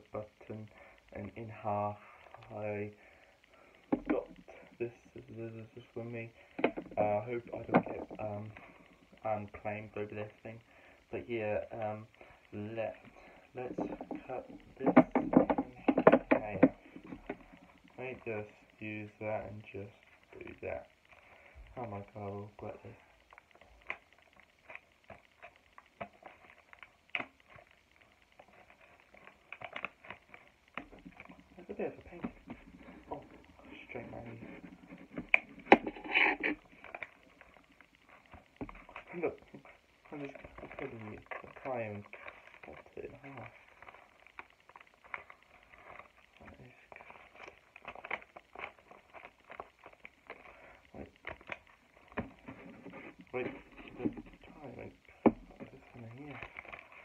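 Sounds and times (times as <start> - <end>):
paper and cardboard crackling: 11.6 - 57.0.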